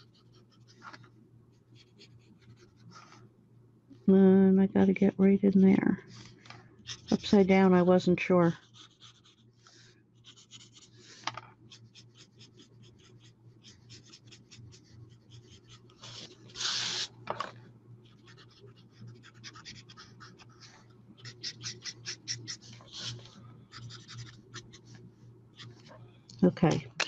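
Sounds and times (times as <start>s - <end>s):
marker scratching on card: 6.9s - 7.5s, 8.6s - 9.4s, 10.2s - 11.0s, 11.7s - 17.1s, 18.1s - 25.0s, 25.6s - 25.9s
card sliding on mat: 16.0s - 17.5s.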